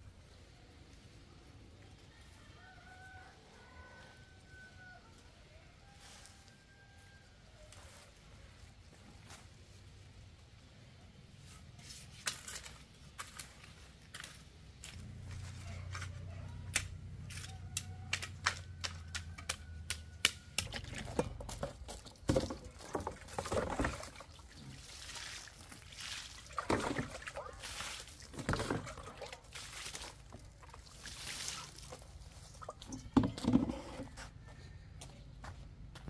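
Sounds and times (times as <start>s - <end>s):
water pouring onto ground: 20.6s - 32.9s.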